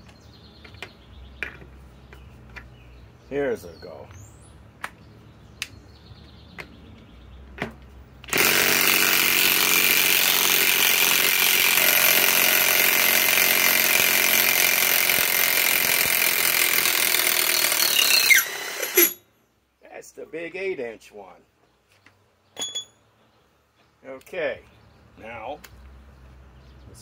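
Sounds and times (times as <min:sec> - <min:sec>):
impact wrench hammering: 0:08.3 - 0:19.2.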